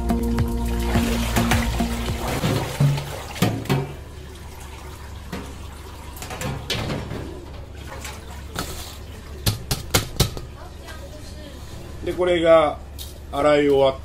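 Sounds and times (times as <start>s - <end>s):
water sloshing and dripping: 0.0s - 11.1s
metal bowl knocks: 1.4s - 4.0s.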